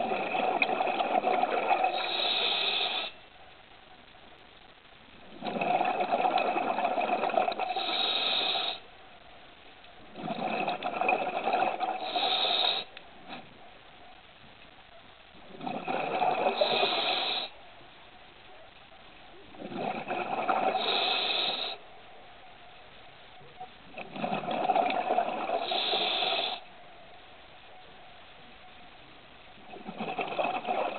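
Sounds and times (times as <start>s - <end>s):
faint steady hiss: 0.0s - 30.9s
diver breathing through regulator: 1.8s - 3.2s, 7.6s - 8.8s, 11.8s - 12.9s, 20.4s - 21.8s, 25.4s - 26.6s.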